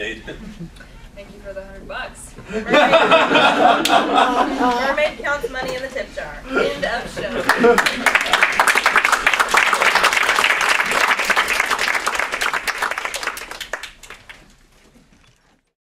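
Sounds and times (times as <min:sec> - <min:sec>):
small group applauding: 0:07.4 - 0:14.6.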